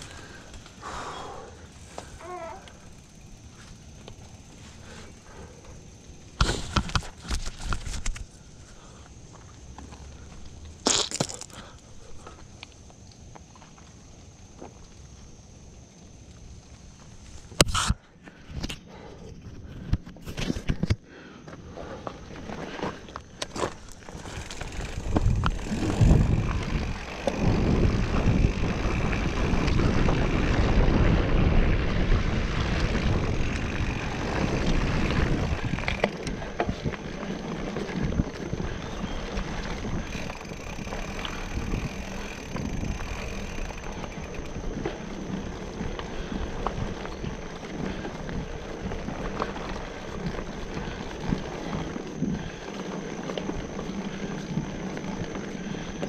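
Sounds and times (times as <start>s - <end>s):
bicycle tyres rolling on trail: 0.0s - 56.0s
wind buffeting microphone: 24.1s - 56.0s.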